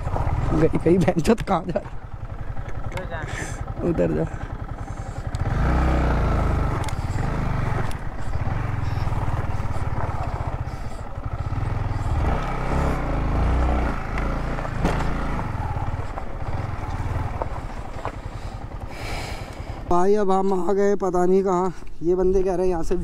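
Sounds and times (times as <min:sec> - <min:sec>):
motorcycle engine running: 0:00.0 - 0:23.0
sharp knocks and rattles: 0:14.1 - 0:18.4.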